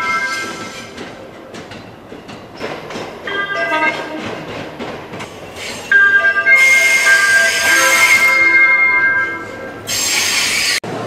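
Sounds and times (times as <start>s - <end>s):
train wheels clicking: 0.0s - 8.3s
two-tone train horn: 6.6s - 8.6s.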